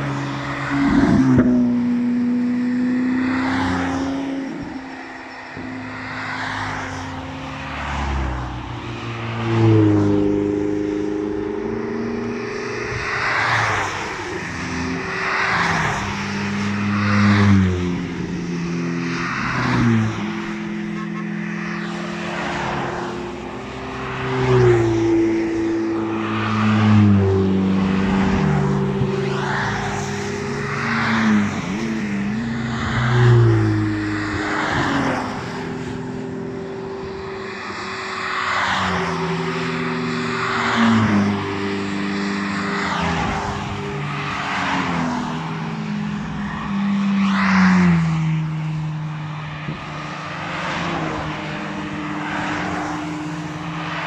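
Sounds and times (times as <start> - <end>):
sports cars driving past: 0.0 - 54.0
tyre noise on wet asphalt: 37.5 - 47.7.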